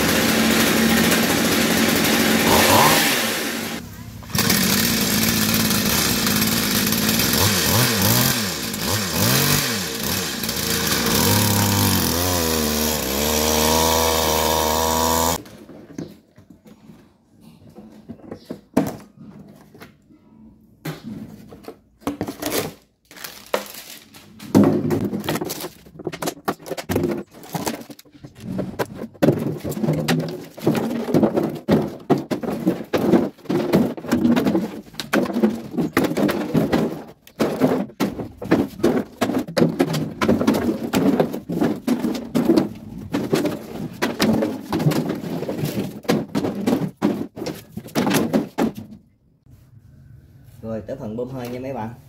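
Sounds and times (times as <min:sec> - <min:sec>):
two-stroke engine revving: 0:00.0 - 0:15.4
plastic bottles crinkling: 0:21.7 - 0:48.9.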